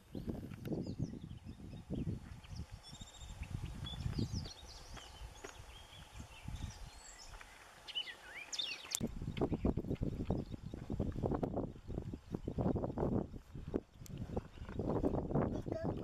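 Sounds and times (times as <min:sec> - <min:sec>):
birds chirping and singing: 0:00.0 - 0:10.8.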